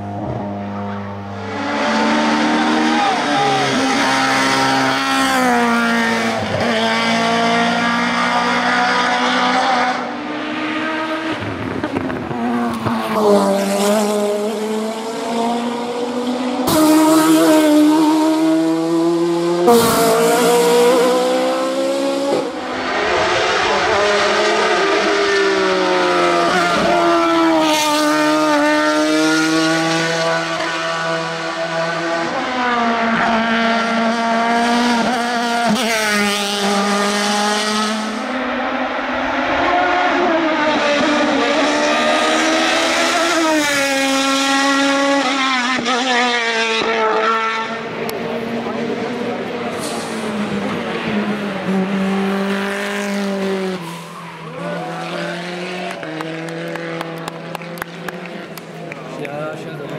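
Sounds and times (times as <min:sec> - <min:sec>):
race car engines at high revs: 0:00.0 - 0:59.9.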